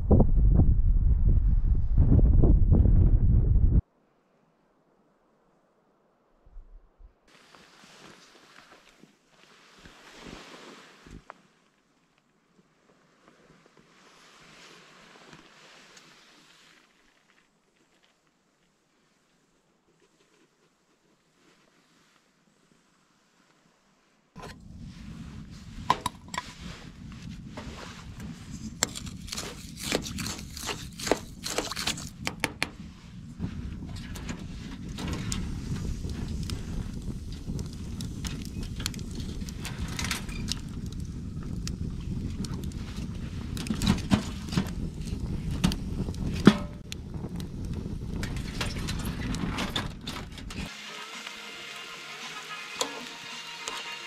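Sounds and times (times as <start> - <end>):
low rumble: 0.0 - 3.8, 6.4 - 7.3
wood fire crackling and popping: 28.1 - 32.8, 34.0 - 50.6
metal spoon scraping metal pot: 52.1 - 54.0.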